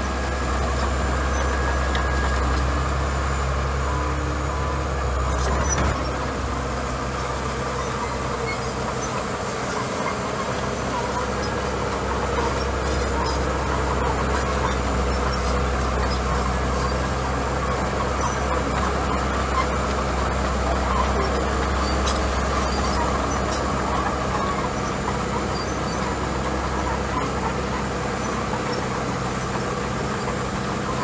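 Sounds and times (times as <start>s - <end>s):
bulldozer diesel engine running: 0.0s - 31.0s
crawler tracks moving: 7.1s - 31.0s.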